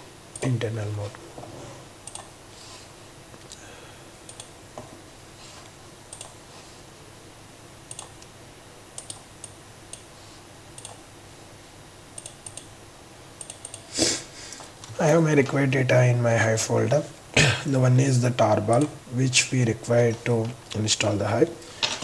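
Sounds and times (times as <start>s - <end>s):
faint steady hiss: 0.0s - 22.0s
computer mouse clicks: 2.0s - 2.3s, 4.3s - 4.5s, 6.1s - 6.4s, 7.9s - 8.3s, 9.0s - 10.1s, 10.8s - 11.0s, 12.2s - 12.7s, 13.4s - 13.9s.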